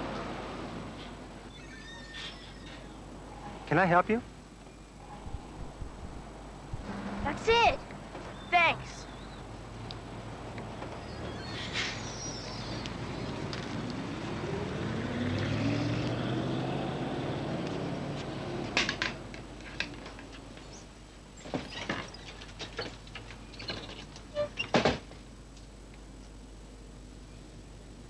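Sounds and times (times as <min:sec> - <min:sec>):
car passing: 0:06.3 - 0:19.2.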